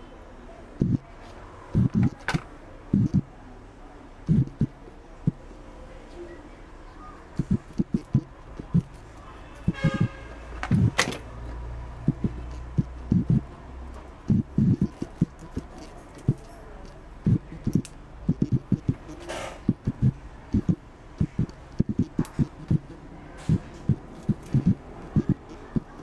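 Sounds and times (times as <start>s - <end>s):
soft knocks and thumps: 10.6s - 11.2s.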